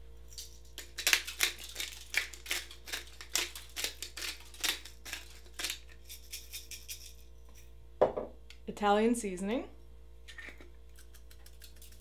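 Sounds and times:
pepper grinder crunchy clicks: 0.4s - 7.2s.

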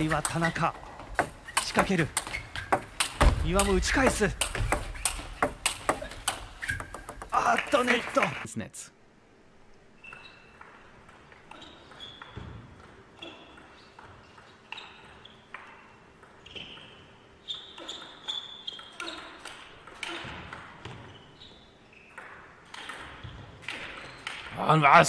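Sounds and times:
table tennis ball pings: 0.0s - 8.2s.

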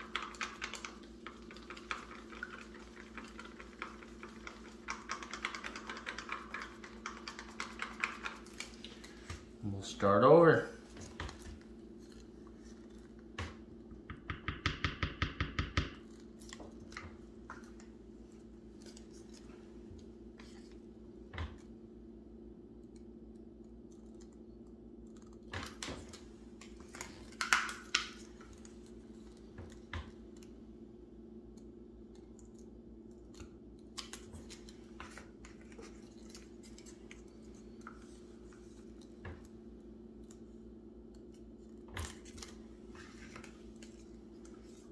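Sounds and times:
paint cups and tools clicking: 0.0s - 9.4s
steady low hum: 0.0s - 44.9s.

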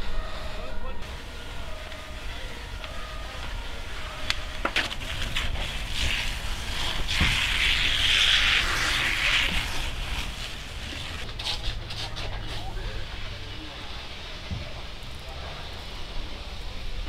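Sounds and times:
fire hose spraying water: 0.0s - 17.0s
steady low rumble: 0.0s - 17.0s.

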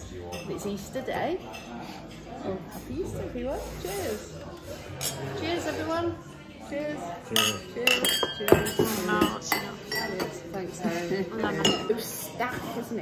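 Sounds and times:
glasses clinking: 7.2s - 10.5s, 11.5s - 12.1s.

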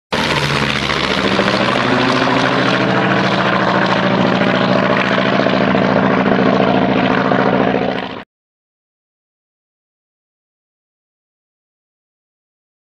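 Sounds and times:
propeller aircraft engine: 0.1s - 8.3s.

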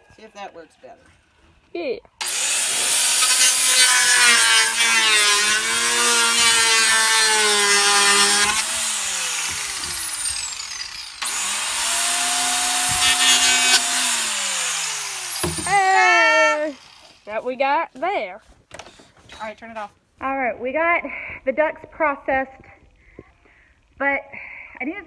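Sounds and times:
power tool cutting plastic: 2.2s - 17.4s.

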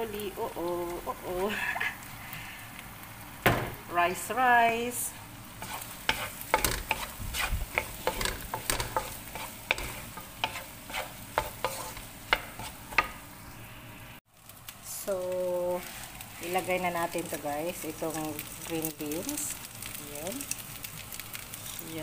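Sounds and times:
low frying sizzle: 0.0s - 22.0s
spatula tapping and scraping wok: 5.6s - 13.3s.

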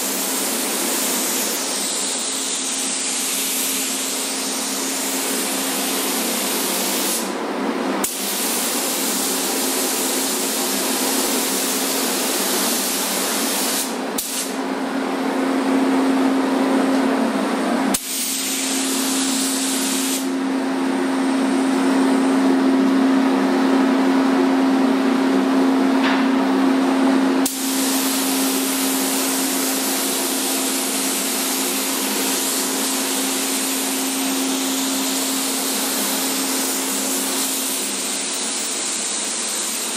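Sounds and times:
paint spray gun hissing: 0.0s - 7.3s, 8.0s - 14.6s, 17.9s - 20.3s, 27.4s - 39.9s.

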